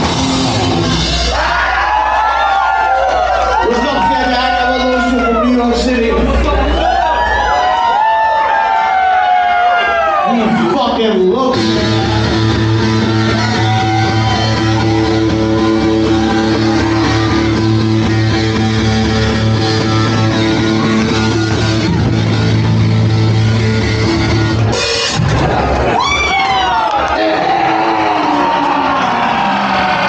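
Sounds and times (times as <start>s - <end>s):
rock band playing live: 0.0s - 2.4s, 10.1s - 26.6s
guitar sustained chords: 11.5s - 24.8s.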